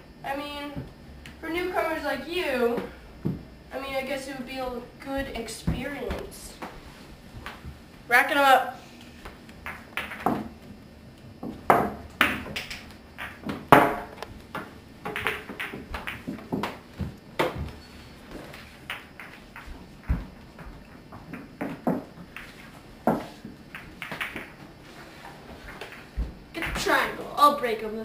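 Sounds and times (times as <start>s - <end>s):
pool balls clacking: 9.6s - 10.8s, 11.4s - 17.8s, 18.4s - 24.6s.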